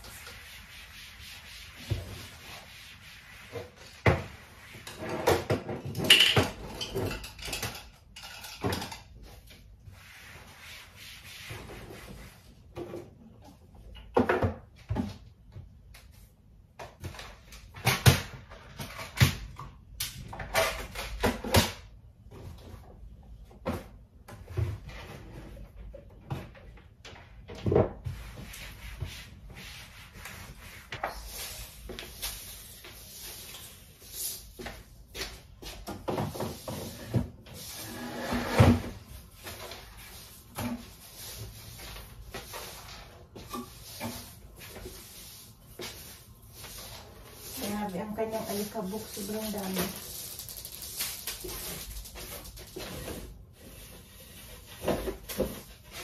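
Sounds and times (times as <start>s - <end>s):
cleaning cloth rubbing: 0.0s - 5.0s, 9.8s - 12.6s, 36.6s - 50.8s
objects knocking and clunking: 4.9s - 9.4s.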